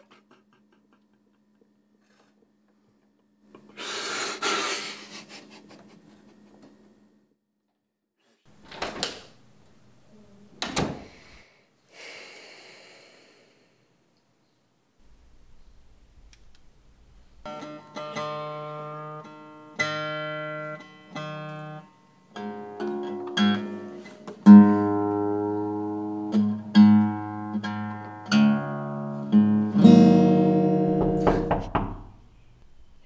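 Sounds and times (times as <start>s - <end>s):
acoustic guitar chords and notes: 17.4s - 31.6s.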